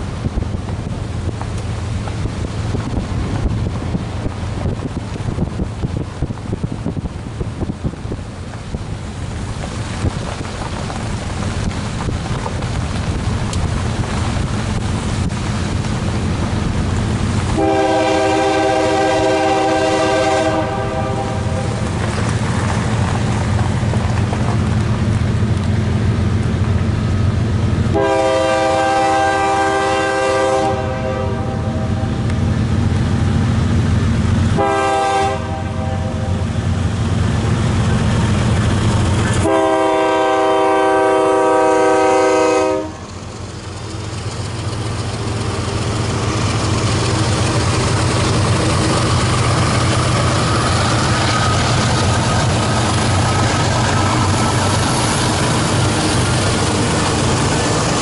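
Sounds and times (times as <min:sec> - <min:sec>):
diesel locomotive engines running: 0:00.0 - 0:58.0
train air horn blasts: 0:17.5 - 0:21.8, 0:27.9 - 0:32.2, 0:34.5 - 0:36.5, 0:39.4 - 0:43.1.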